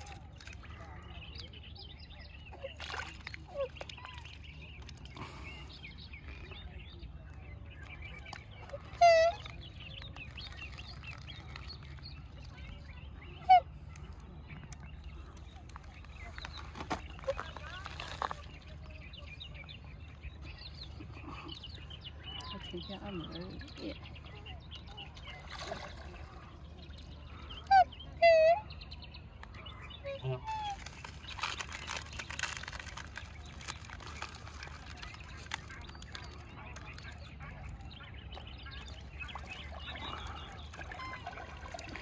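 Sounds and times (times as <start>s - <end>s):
swan calling: 8.7s - 9.5s, 13.2s - 14.3s, 27.3s - 28.8s, 29.7s - 37.5s, 38.7s - 42.0s.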